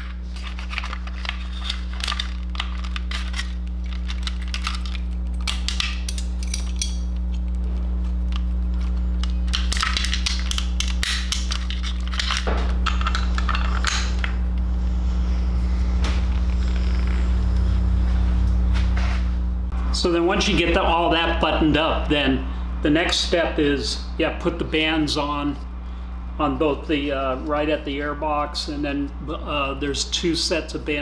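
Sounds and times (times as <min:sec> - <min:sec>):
steady low hum: 0:00.0 - 0:31.0
plastic connectors clicking: 0:08.3 - 0:14.3.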